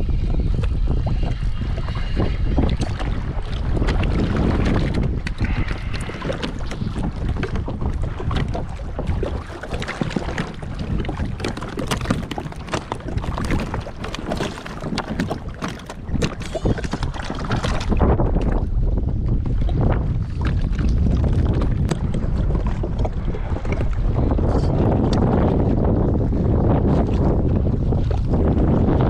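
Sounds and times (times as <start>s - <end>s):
water splashing against kayak hull: 0.0s - 29.0s
wind rumbling on microphone: 0.0s - 29.0s.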